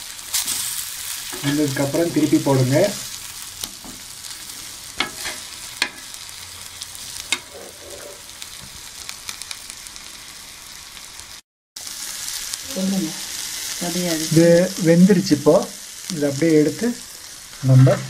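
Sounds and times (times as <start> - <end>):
fish sizzling in oil: 0.0 - 18.0
steel spatula clicking on griddle: 5.0 - 6.1.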